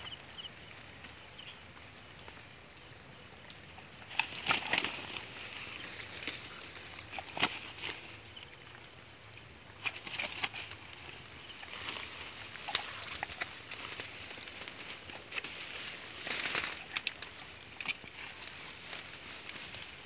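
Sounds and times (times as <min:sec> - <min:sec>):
fish flapping and slapping: 0:04.0 - 0:08.4, 0:09.7 - 0:20.0
rustling of fish handling: 0:04.1 - 0:08.9, 0:09.7 - 0:20.0.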